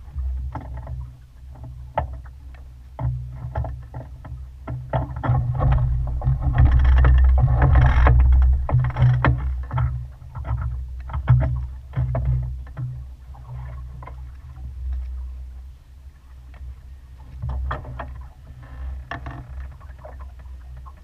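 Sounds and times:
sharp flaps and knocks: 4.9 - 12.3
wind buffeting microphone: 5.3 - 10.2.

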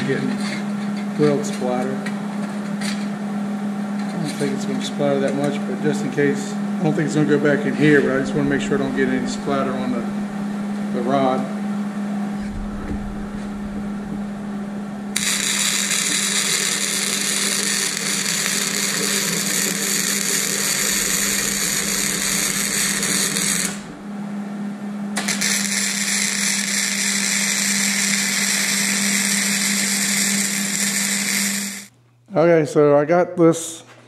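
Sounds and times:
low hum: 6.2 - 17.2, 19.6 - 25.2
welding arc crackling: 12.4 - 24.0, 25.2 - 31.9.

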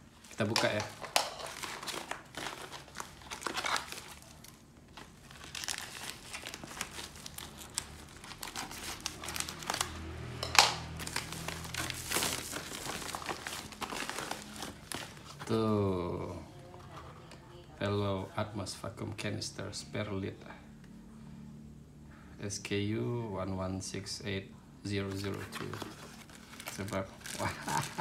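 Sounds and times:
plastic mailer crinkling: 0.0 - 10.3, 10.9 - 15.7, 25.1 - 28.0.

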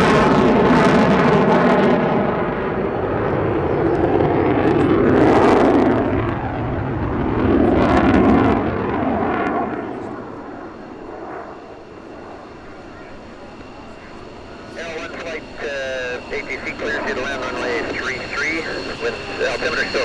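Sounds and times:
jet flying past: 0.0 - 20.0.

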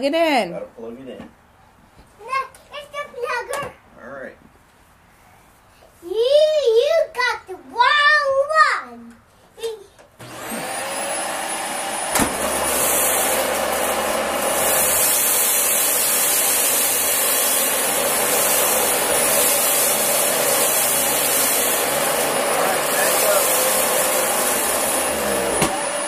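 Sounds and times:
vacuum cleaner click: 10.2 - 14.3, 23.1 - 26.0
vacuum cleaner motor whine: 10.2 - 26.0.

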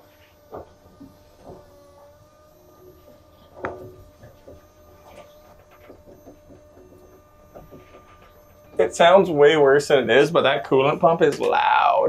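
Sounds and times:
coolant pump whining: 0.0 - 12.0.

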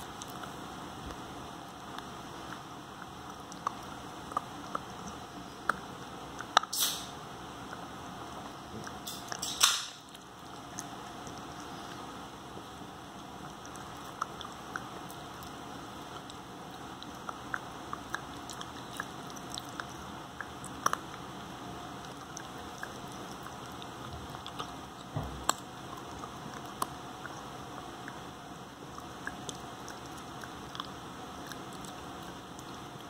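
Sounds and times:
puppy chewing hard chew: 0.0 - 33.0.

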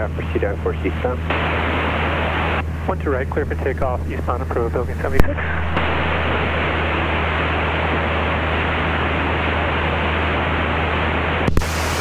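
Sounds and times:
airplane engine and propeller drone: 0.0 - 12.0
radio static hiss: 0.0 - 12.0.

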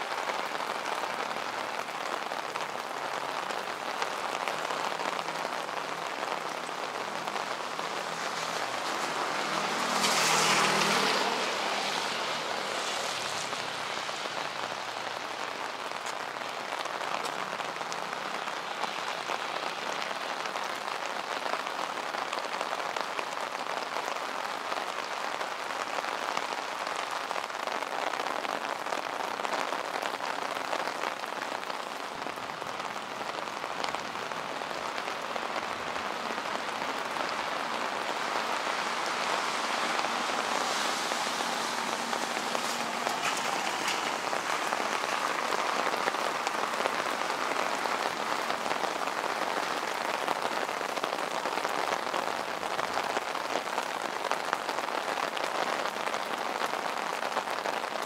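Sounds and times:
rain on pavement: 0.0 - 58.0.

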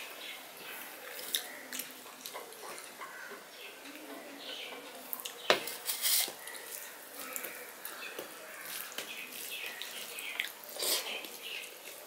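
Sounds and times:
hand squelching rice and curry: 6.1 - 12.0.

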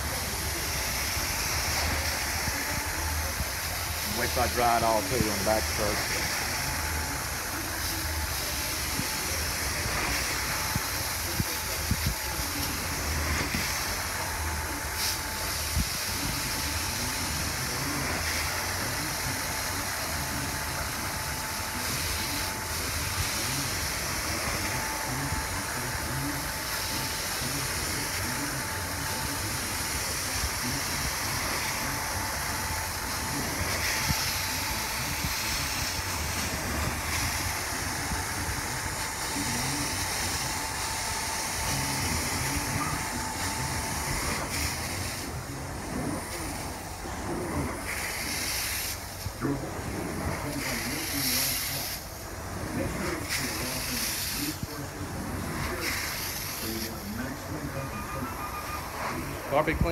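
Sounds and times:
carpet extraction wand hissing: 0.0 - 58.3
thin whistling tone: 57.7 - 59.3.

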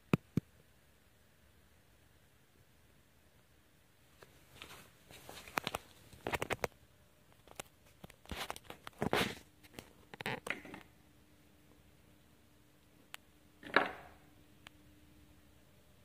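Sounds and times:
faint steady hum: 0.0 - 16.0
rustling: 4.1 - 10.6.

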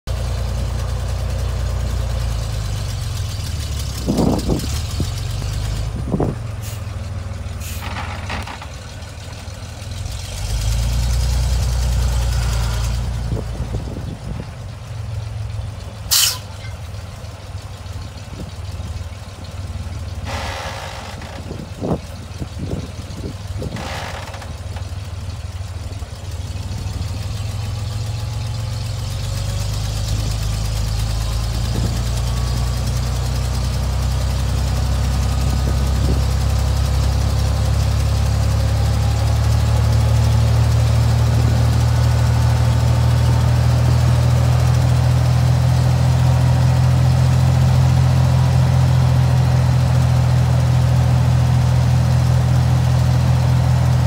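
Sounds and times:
truck engine idling: 0.1 - 54.0
short air hisses: 6.6 - 6.9, 16.1 - 16.6.

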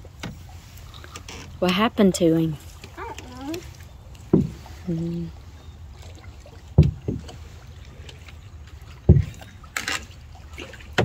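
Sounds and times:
paddle knocking canoe hull: 0.0 - 0.5, 2.6 - 11.0
soft water noise: 0.0 - 11.0.

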